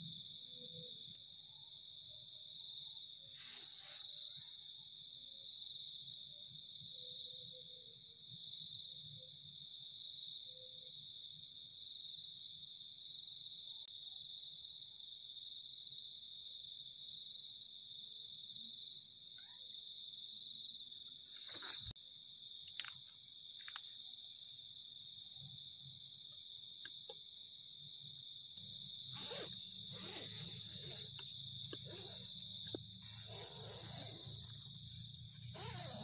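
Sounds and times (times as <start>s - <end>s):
crickets chirring: 0.0s - 36.0s.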